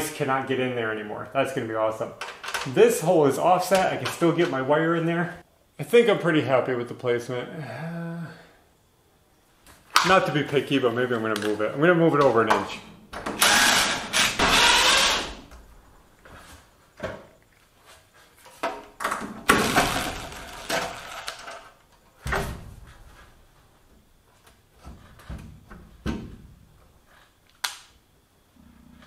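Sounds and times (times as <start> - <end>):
cordless drill driving screws: 13.4 - 15.4, 19.6 - 21.5.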